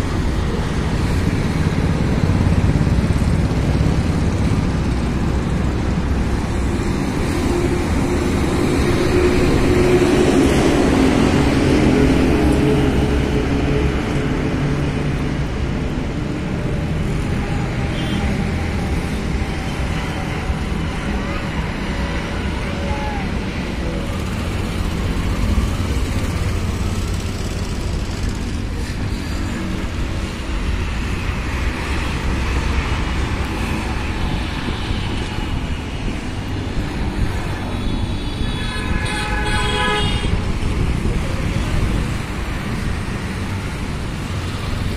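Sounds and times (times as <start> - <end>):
road traffic engines rumbling: 0.0 - 44.9
vehicle horn: 17.6 - 18.4, 37.8 - 40.4.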